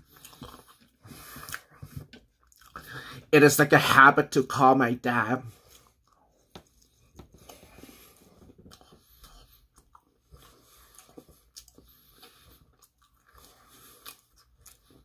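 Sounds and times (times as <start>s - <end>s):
person chewing pizza: 0.0s - 3.1s, 5.5s - 15.0s.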